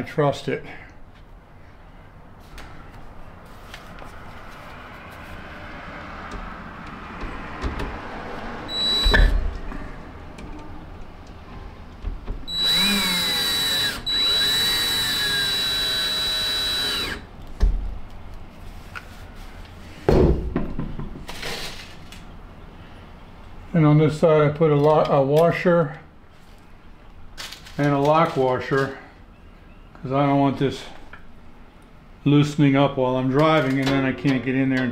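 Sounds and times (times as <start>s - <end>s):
power drill boring wood: 8.7s - 9.4s, 12.5s - 17.3s.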